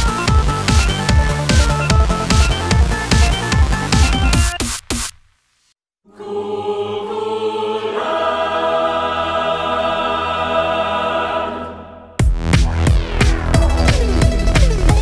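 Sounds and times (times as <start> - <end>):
held chords: 0.0 - 4.6
electronic dance music: 0.0 - 5.2, 12.2 - 15.0.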